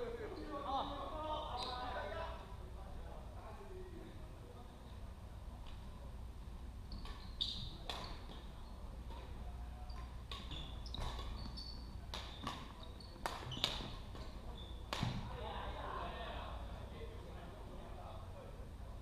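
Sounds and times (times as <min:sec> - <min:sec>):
rackets smacking shuttlecock: 0:06.9 - 0:09.3, 0:09.9 - 0:15.3
shoes squeaking on wooden floor: 0:10.4 - 0:15.0.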